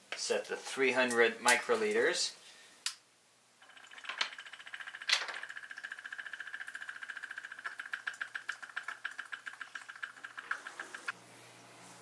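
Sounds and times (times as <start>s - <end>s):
magnetic stirrer whine and ticking: 3.6s - 11.2s.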